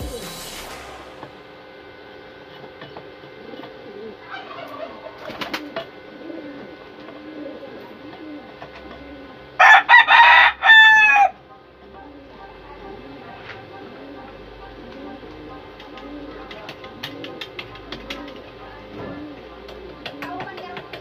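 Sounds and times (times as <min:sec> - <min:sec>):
pigeons cooing: 0:03.2 - 0:21.0
rooster crowing: 0:09.6 - 0:11.4.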